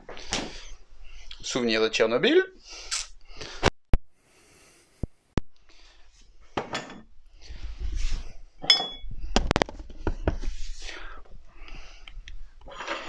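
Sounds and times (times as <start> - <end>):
glass clinking: 8.6 - 9.1.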